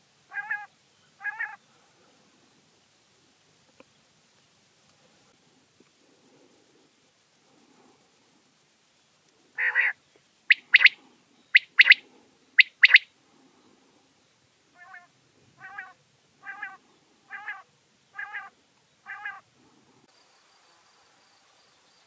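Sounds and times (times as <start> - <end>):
quail calling: 0.3 - 1.6, 9.6 - 12.0, 12.6 - 13.1, 14.8 - 19.5.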